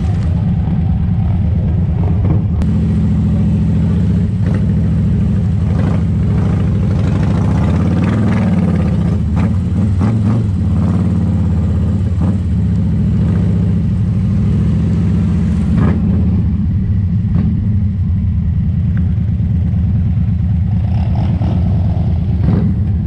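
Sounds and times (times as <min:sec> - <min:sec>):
motorcycle engine running: 0:00.0 - 0:23.0.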